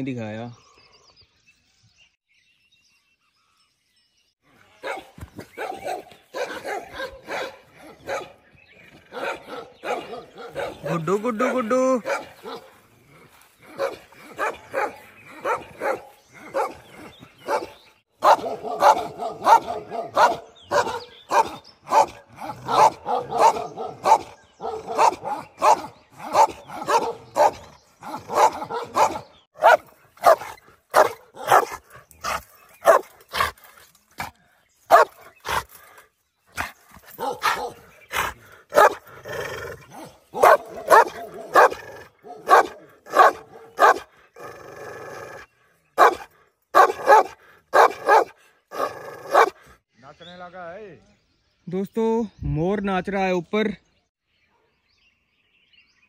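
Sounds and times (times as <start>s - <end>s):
dog barking: 4.8s - 8.4s, 9.1s - 12.8s, 13.7s - 33.5s, 34.9s - 35.6s, 36.6s - 39.0s, 39.9s - 44.1s, 46.0s - 49.6s.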